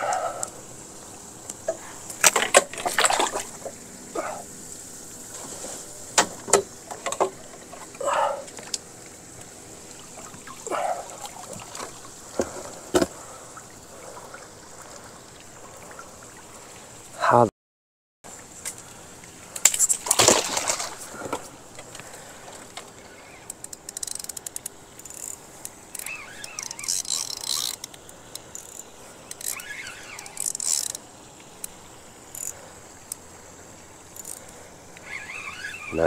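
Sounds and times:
water splashing and sloshing: 0.0 - 17.2, 18.3 - 36.0
knocks against a boat: 12.4 - 13.2.

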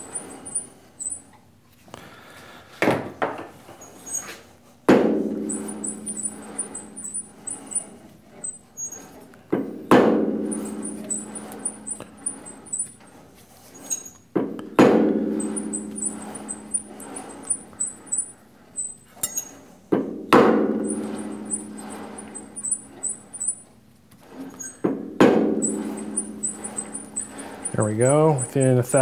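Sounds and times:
metal chuck ringing: 10.2 - 13.0, 15.0 - 19.6, 24.6 - 29.0.

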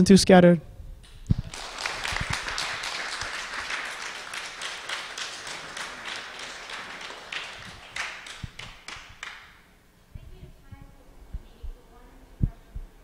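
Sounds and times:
audience applauding: 1.2 - 9.7.

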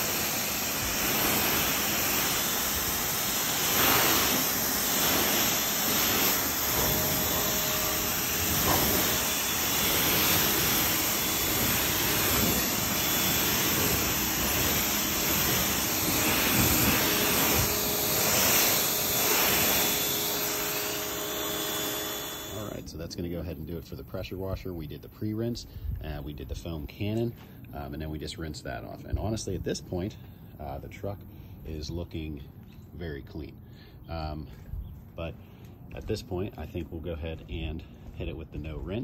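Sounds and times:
pressure washer water jet hissing: 0.0 - 22.9.

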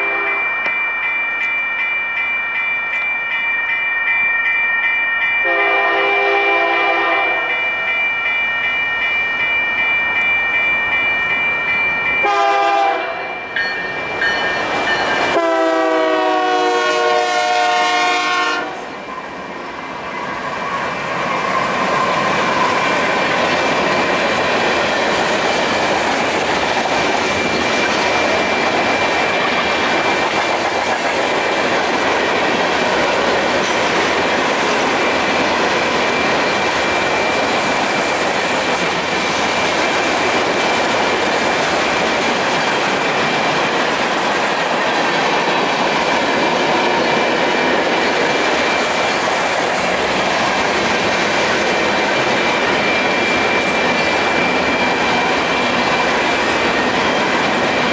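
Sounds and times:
locomotive horn blast: 0.0 - 0.5, 5.4 - 7.6, 12.2 - 13.3, 15.3 - 18.9
crossing bell ringing: 0.0 - 57.9
train wheels clickety-clack: 20.1 - 57.9.

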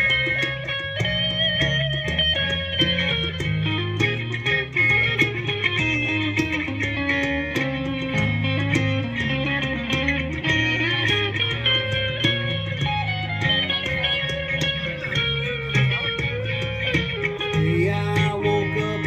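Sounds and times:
bass guitar line: 0.0 - 19.0
electric guitar notes: 0.0 - 19.0
steady drum beat: 0.0 - 19.0.

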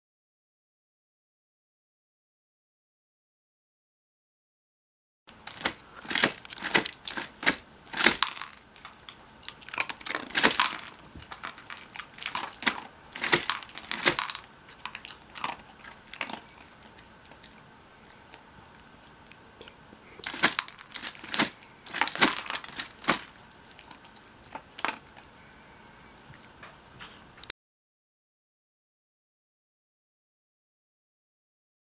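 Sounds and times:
dog crunching treats: 5.3 - 25.3
plastic clacks and rattles: 5.5 - 15.6, 20.2 - 23.3.

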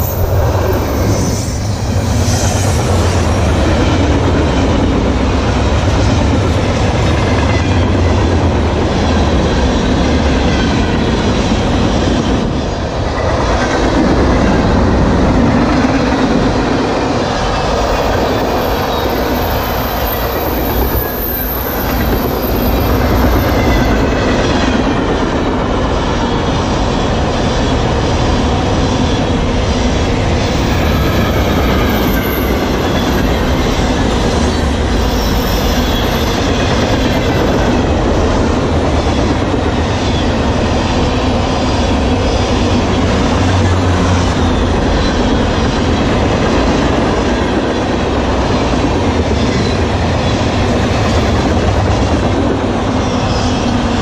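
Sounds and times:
high wheel squeal: 0.0 - 4.7, 17.4 - 24.4, 28.4 - 37.8
train wheels rumbling and clacking: 0.0 - 54.0.

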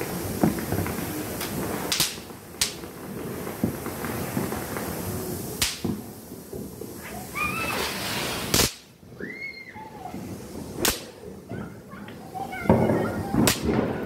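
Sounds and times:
firecracker bangs: 0.0 - 9.3, 10.1 - 14.0
fuse hissing: 0.0 - 14.0.

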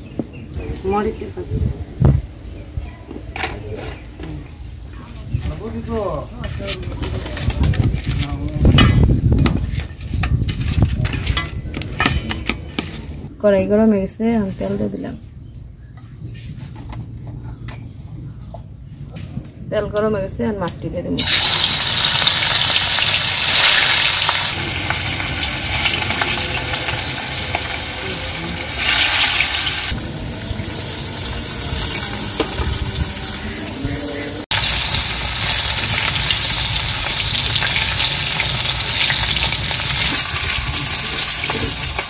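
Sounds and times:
fish sizzling in hot oil: 21.2 - 33.7, 34.5 - 42.0.

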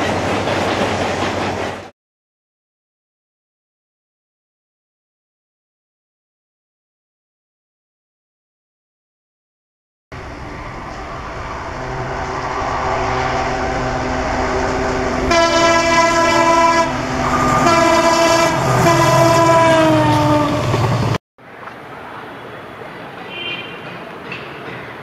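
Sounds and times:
diesel locomotive approaching: 0.0 - 1.9, 10.1 - 21.2
train running noise: 0.0 - 1.9, 10.2 - 21.2, 22.8 - 25.0
train horn blasts: 10.6 - 20.7.

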